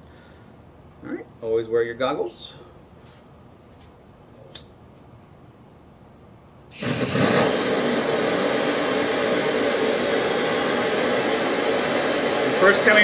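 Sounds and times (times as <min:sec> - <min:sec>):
propane torch hissing: 0:06.7 - 0:13.0.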